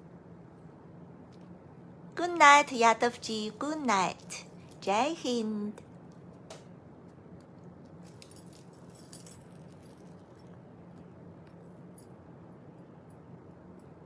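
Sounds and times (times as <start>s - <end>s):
bangles clinking: 7.9s - 10.6s.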